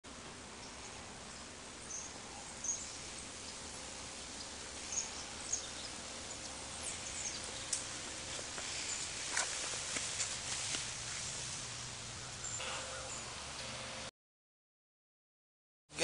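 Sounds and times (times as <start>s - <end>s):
faint hiss: 0.1s - 14.1s.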